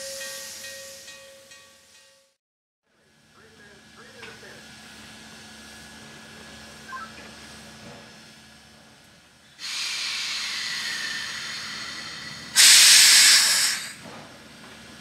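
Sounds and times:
steam locomotive hissing: 0.0s - 1.2s, 9.6s - 15.0s
harsh burst of steam: 9.6s - 14.1s.

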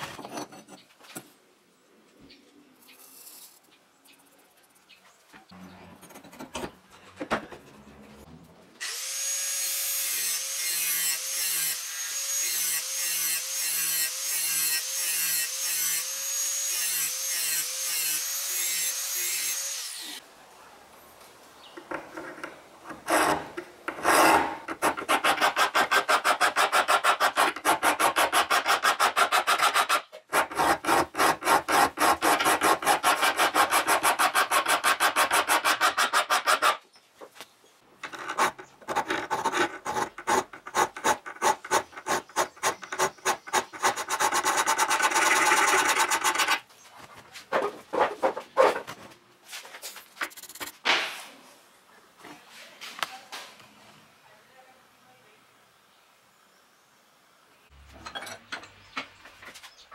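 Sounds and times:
file scraping steel blade: 22.2s - 36.8s, 38.0s - 46.6s.

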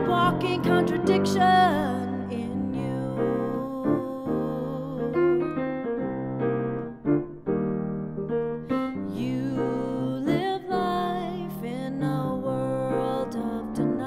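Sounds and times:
grand piano chords: 0.0s - 14.0s.

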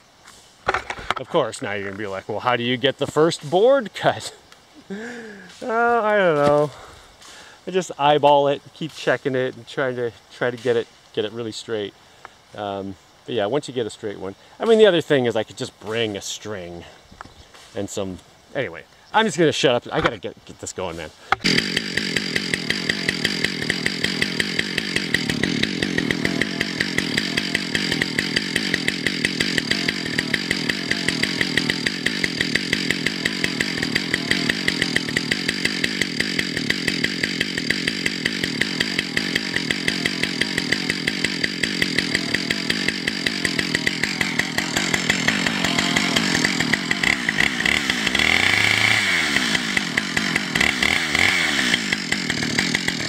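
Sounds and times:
chainsaw idling and revving: 4.9s - 7.3s, 21.0s - 53.0s.

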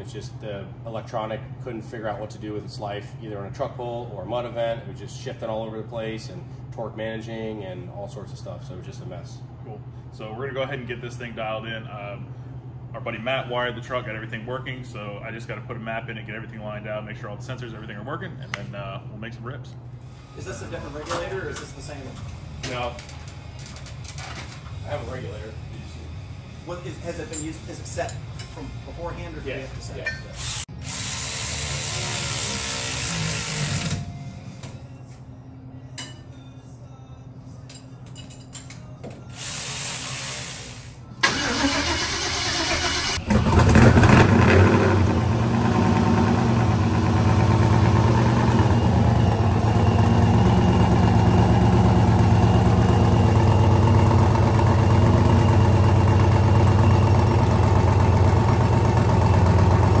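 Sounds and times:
truck engine starting and idling: 41.2s - 60.0s.

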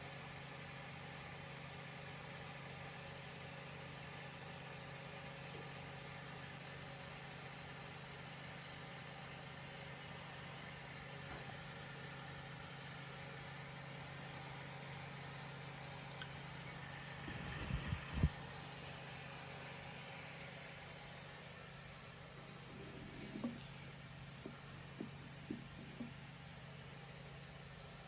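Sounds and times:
faint low machine hum: 0.0s - 28.0s.

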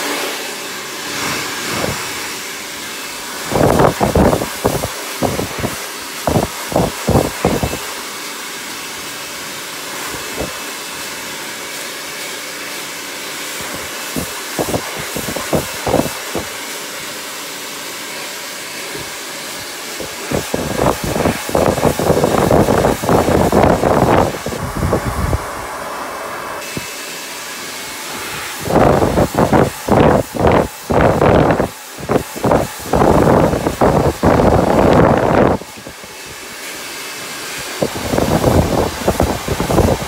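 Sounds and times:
hair dryer blowing: 0.0s - 40.0s
low buffeting bursts: 1.1s - 7.8s, 20.0s - 26.4s.

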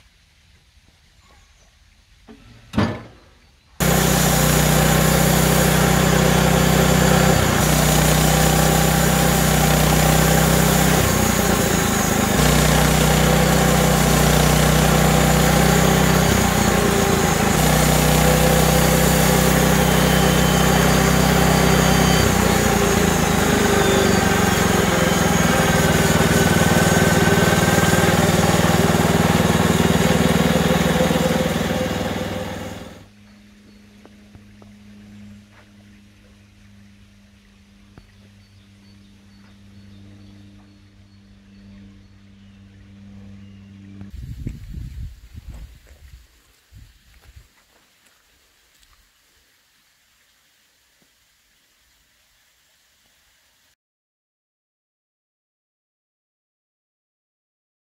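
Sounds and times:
bandsaw blade sawing through log: 3.8s - 33.1s
petrol engine running under load: 3.8s - 33.1s.

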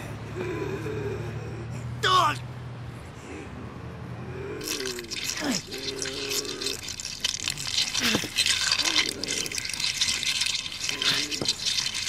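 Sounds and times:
strained vocal sounds: 3.3s - 12.0s
liquid splashing: 4.6s - 12.0s.

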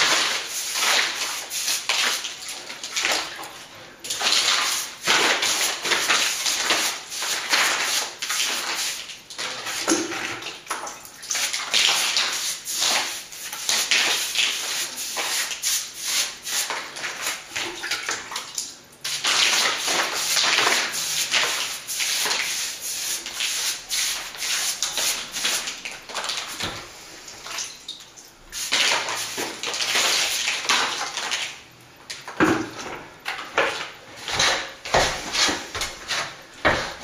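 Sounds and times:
brush scrubbing concrete: 0.0s - 2.4s, 4.1s - 9.9s, 11.4s - 17.5s, 19.1s - 25.8s.

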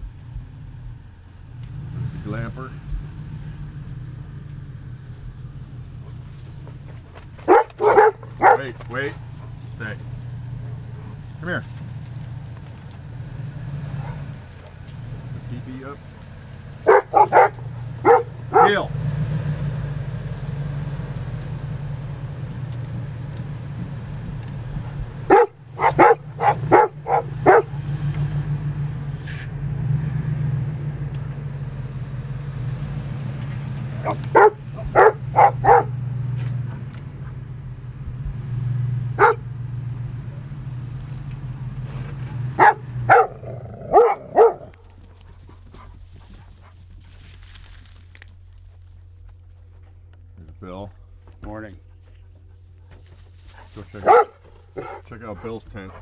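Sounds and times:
truck engine idling: 0.0s - 56.0s
dog barking: 7.2s - 9.6s, 13.7s - 14.7s, 16.8s - 18.9s, 25.2s - 27.8s, 33.9s - 36.1s, 39.2s - 39.5s, 42.4s - 44.9s, 53.7s - 56.0s.

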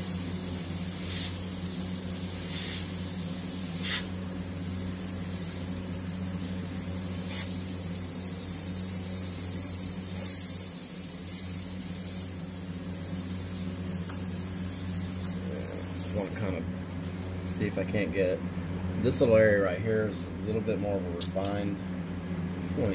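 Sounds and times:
airbrush spraying hiss: 0.0s - 17.4s
steady low hum: 0.0s - 22.9s.

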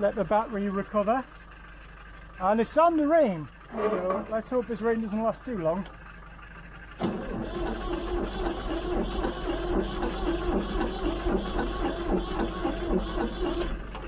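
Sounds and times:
diesel engine cranking: 0.0s - 14.0s.

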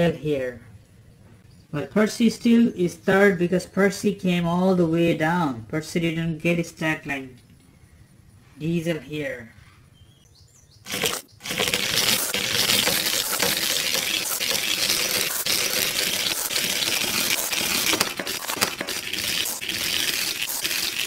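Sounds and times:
toy train clattering down track: 10.9s - 21.0s.

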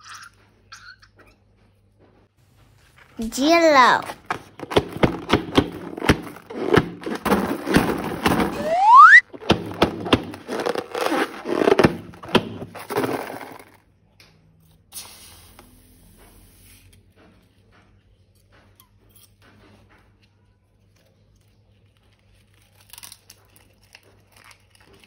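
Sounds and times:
rising squeal: 8.5s - 9.2s.

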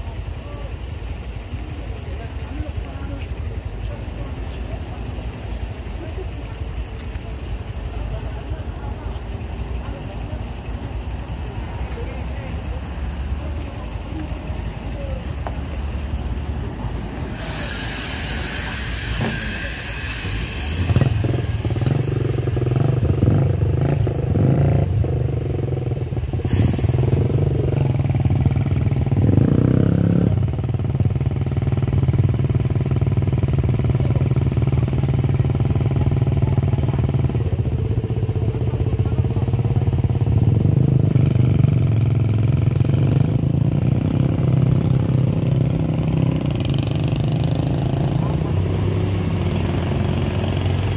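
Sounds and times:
diesel bus engine under load: 0.0s - 50.9s
brief hiss: 17.2s - 21.9s, 26.4s - 27.4s.

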